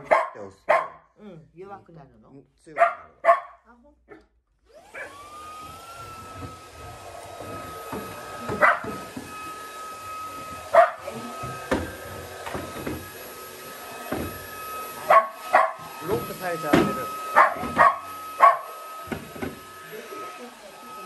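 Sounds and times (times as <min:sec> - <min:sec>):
dog barking: 0:00.0 - 0:01.1, 0:02.8 - 0:04.3, 0:05.0 - 0:05.2, 0:08.5 - 0:09.0, 0:10.7 - 0:11.0, 0:15.1 - 0:15.8, 0:17.3 - 0:18.7
vacuum motor whine: 0:04.6 - 0:21.0.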